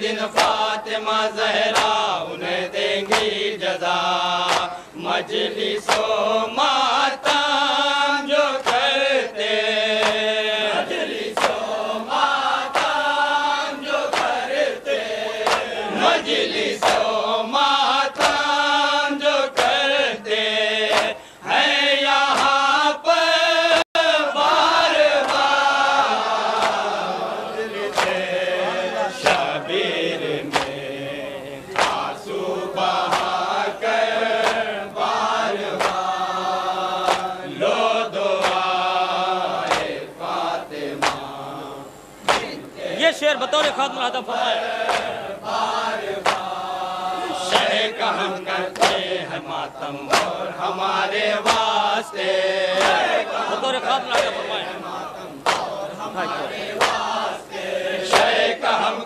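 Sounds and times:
men chanting together: 0.0s - 59.0s
hands beating on chests: 42.3s - 42.6s, 55.4s - 55.7s.

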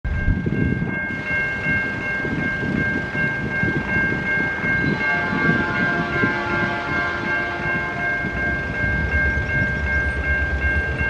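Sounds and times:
distant locomotive horn: 4.8s - 8.4s.

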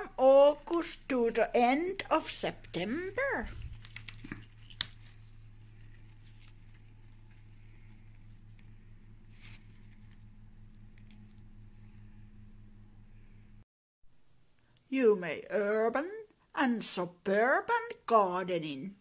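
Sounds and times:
steady low hum: 0.0s - 13.6s
leaves rustling: 2.8s - 12.1s.

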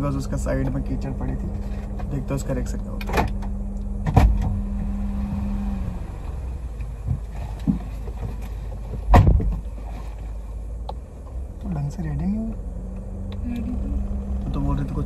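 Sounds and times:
car engine idling: 0.0s - 15.0s
steady hum: 0.0s - 15.0s
car door shutting with thud: 3.0s - 5.4s, 7.0s - 9.8s
small knocks and rustling: 6.8s - 11.4s.

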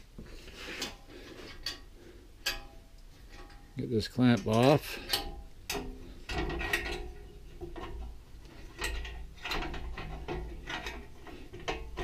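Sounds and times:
metal clamp clicking and ratcheting: 4.4s - 8.0s.

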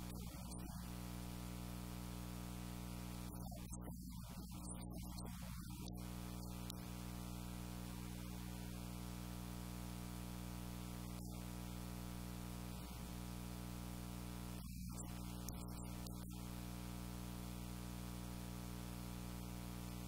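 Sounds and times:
constant hiss: 0.0s - 20.0s.

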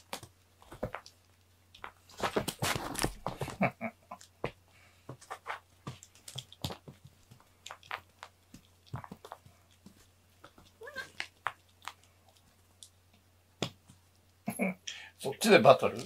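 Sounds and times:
cat meow: 10.8s - 11.2s.

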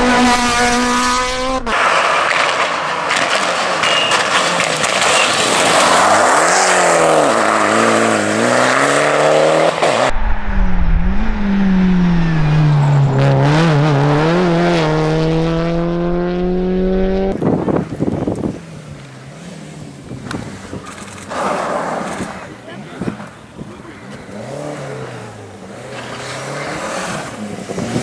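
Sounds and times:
rally car engine revving: 0.0s - 28.0s
car accelerating away: 5.4s - 17.4s, 24.0s - 28.0s.

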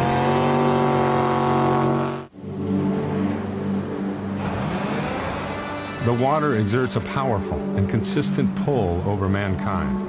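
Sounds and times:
boat engines at high revs: 0.0s - 8.5s
rough quieter engine sound: 0.0s - 10.0s.

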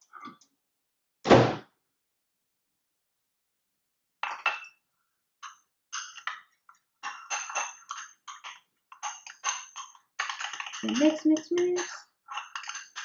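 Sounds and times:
metal spoon clinking against bowl: 7.0s - 13.0s.

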